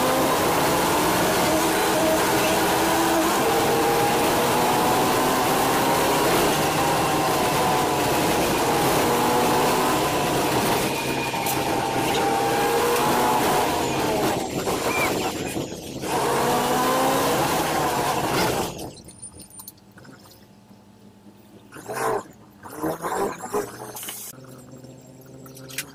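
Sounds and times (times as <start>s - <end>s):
bus engine and drivetrain hum: 0.0s - 20.0s
road noise: 0.0s - 21.8s.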